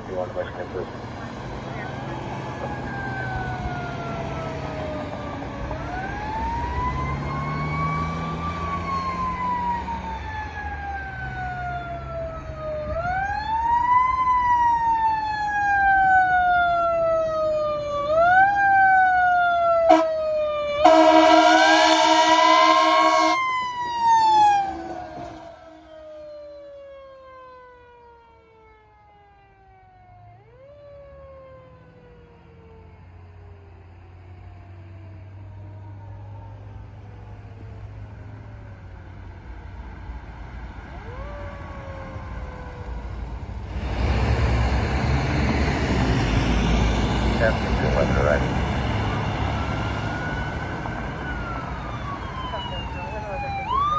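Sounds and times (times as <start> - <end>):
faint second siren: 0.0 - 53.9
fire engine siren: 0.0 - 53.9
loud horn blast: 19.9 - 20.2, 20.8 - 23.4.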